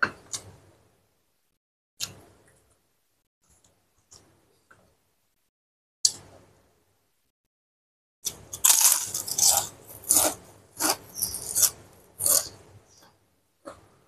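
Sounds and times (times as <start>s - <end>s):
crunchy chewing of crackers: 8.2s - 12.6s.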